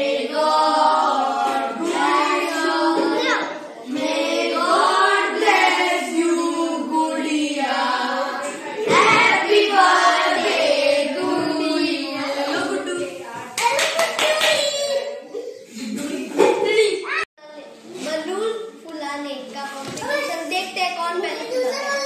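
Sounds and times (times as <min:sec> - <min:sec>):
children singing together: 0:00.0 - 0:13.4
hand claps: 0:13.5 - 0:14.9.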